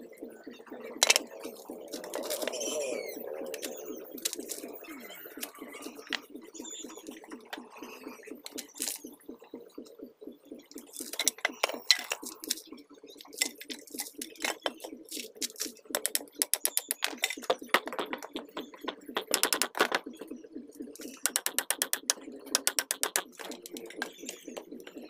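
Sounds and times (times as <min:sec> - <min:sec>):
low pulsing sound: 0:00.0 - 0:21.4
wooden boards knocking together: 0:01.0 - 0:01.3, 0:15.4 - 0:20.0, 0:21.2 - 0:24.1
quick clicks: 0:03.4 - 0:06.3.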